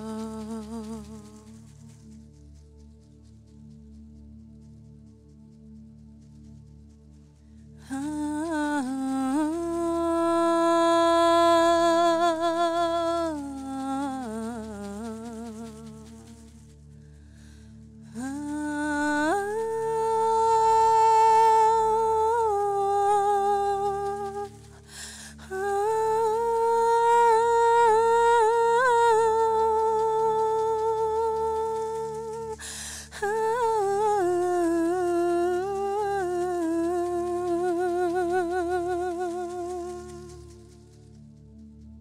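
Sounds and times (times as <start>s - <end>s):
woman singing wordless notes: 0.0s - 1.9s, 7.8s - 16.5s, 18.2s - 40.9s
low drone: 0.0s - 42.0s.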